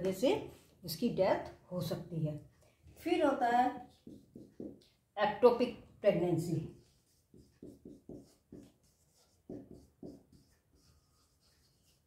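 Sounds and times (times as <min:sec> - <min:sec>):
marker pen writing on whiteboard: 0:02.9 - 0:05.2, 0:06.4 - 0:12.0.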